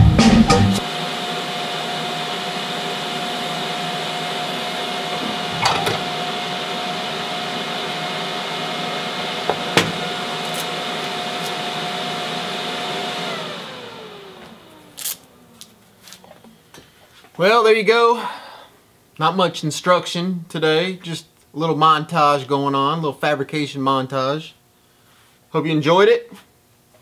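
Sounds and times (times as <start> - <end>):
electric motor whining: 0.8 - 16.6
motor spinning down: 0.8 - 16.6.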